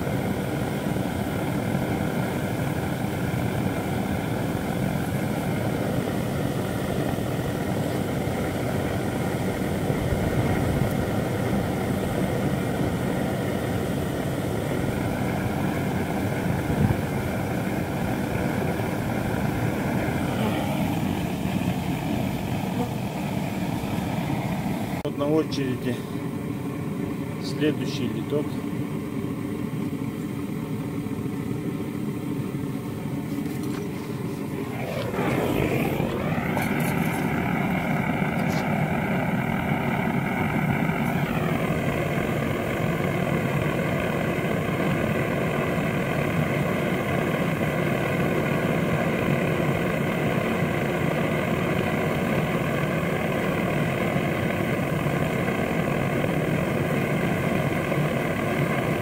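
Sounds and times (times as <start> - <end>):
motor humming: 0.0 - 25.0, 33.2 - 46.6.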